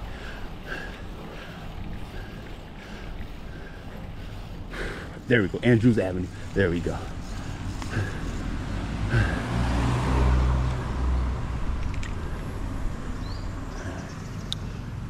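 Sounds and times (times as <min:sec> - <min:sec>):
road traffic: 0:00.0 - 0:15.0
vehicle passing close by: 0:06.3 - 0:15.0.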